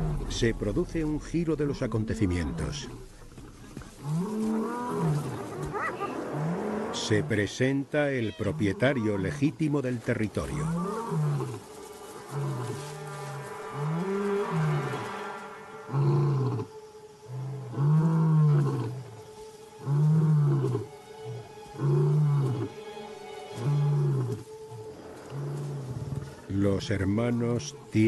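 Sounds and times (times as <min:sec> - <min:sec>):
lion roaring: 0:15.9 - 0:19.0.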